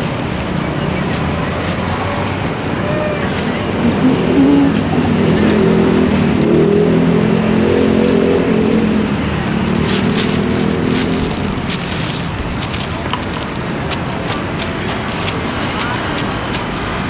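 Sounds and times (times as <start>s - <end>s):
plastic bag crinkling: 0.0s - 5.6s, 9.5s - 17.0s
vehicle engine humming: 0.0s - 17.0s.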